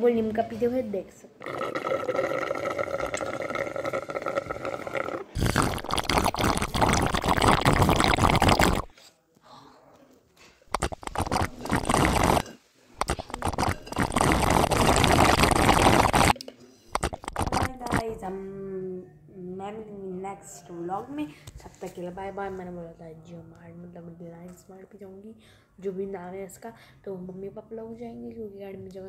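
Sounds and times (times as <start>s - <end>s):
slurping soda through a straw: 1.4s - 8.9s, 10.7s - 18.1s
sucking and gurgling: 1.4s - 8.9s, 10.7s - 18.1s.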